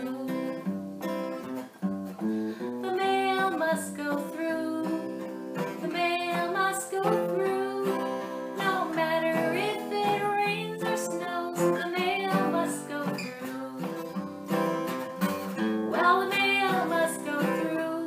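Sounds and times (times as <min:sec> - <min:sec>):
woman singing: 0:00.0 - 0:00.8, 0:02.8 - 0:14.2, 0:15.8 - 0:18.0
acoustic guitar strumming: 0:00.0 - 0:18.0.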